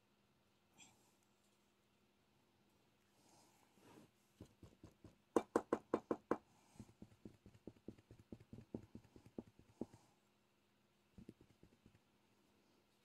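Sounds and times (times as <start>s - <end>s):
drill pen tapping on canvas: 4.4s - 10.1s, 11.2s - 12.0s.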